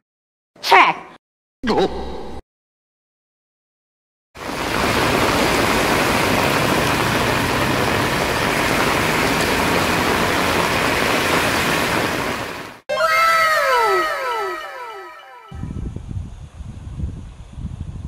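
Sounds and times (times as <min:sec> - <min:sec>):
heavy rain on a road: 0:04.4 - 0:12.8.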